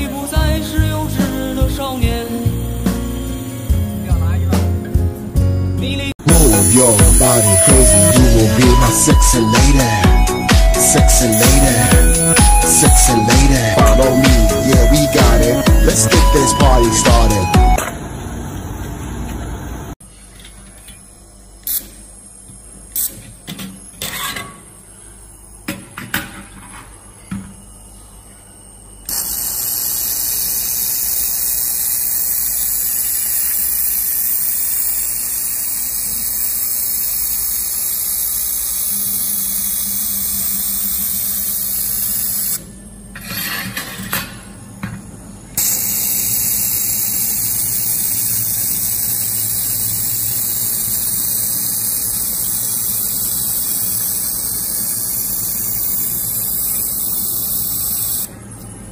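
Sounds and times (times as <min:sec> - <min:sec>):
laser welder hissing: 0:00.0 - 0:04.8, 0:06.2 - 0:17.8, 0:29.1 - 0:42.6, 0:45.6 - 0:58.3.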